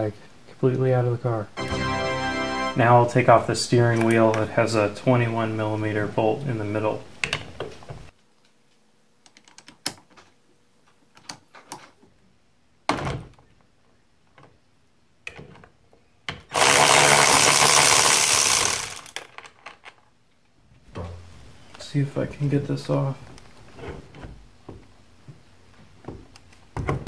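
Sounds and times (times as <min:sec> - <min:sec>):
power tool running: 0:16.5 - 0:19.2.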